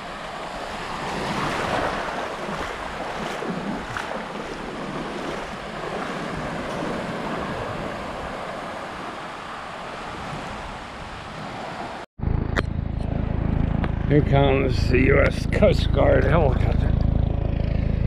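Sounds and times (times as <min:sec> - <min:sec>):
wind on microphone: 0:00.0 - 0:12.0
surf washing in shallows: 0:00.0 - 0:12.1
steady low rumble: 0:12.2 - 0:18.0.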